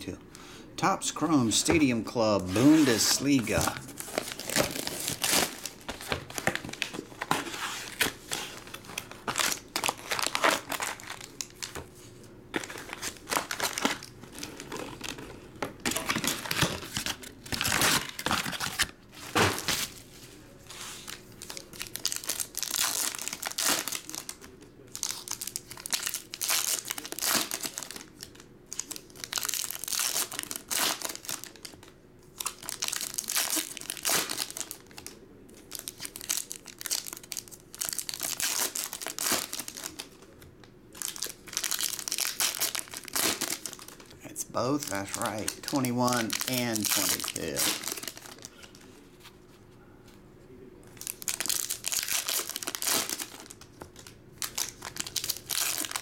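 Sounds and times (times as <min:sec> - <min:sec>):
plastic wrappers crinkling and tearing: 0:02.3 - 0:49.3, 0:51.0 - 0:56.0.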